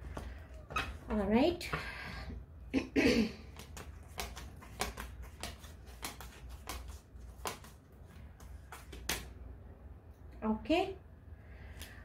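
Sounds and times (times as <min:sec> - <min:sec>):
cards being shuffled: 0:03.5 - 0:09.4.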